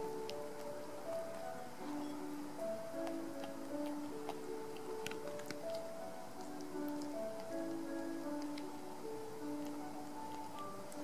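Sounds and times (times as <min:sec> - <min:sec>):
cat chewing and licking: 0:00.0 - 0:11.0
slow background music: 0:00.0 - 0:11.0.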